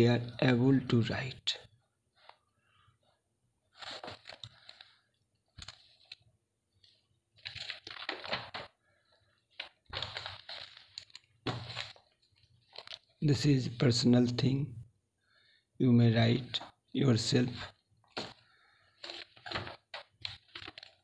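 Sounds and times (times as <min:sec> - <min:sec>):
paper pages rustling: 0:03.7 - 0:13.2, 0:17.5 - 0:21.0.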